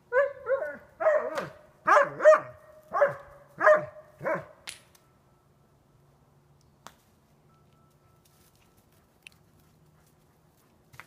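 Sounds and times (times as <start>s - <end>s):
dog barking: 0.1s - 4.6s.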